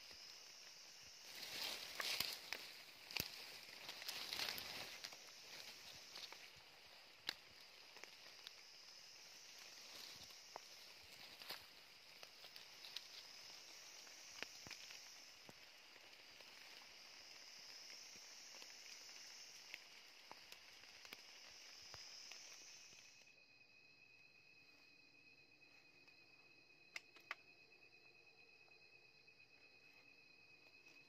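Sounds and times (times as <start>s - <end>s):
high-pitched insect trill: 0.0s - 31.0s
insect chorus buzzing: 0.0s - 31.0s
faint clicks and rustles: 1.2s - 23.0s.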